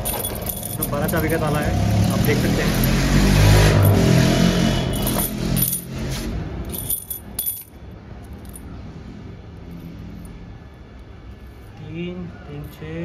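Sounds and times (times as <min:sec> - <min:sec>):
keys set down on stone: 0:00.0 - 0:01.5
keys jangling: 0:00.0 - 0:03.0, 0:04.9 - 0:05.9.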